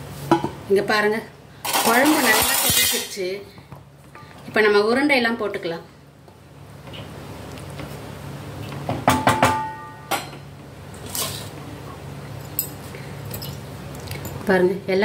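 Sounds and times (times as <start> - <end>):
metal ladle knocking on pot: 9.0 - 10.4.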